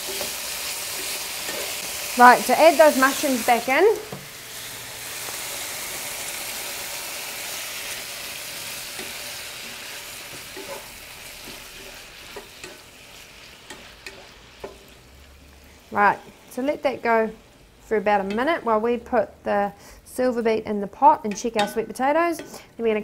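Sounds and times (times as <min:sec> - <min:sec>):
steak and mushrooms sizzling in pan: 0:00.0 - 0:18.3
spatula tapping and scraping pan: 0:08.9 - 0:12.9, 0:13.6 - 0:15.0, 0:21.3 - 0:22.6.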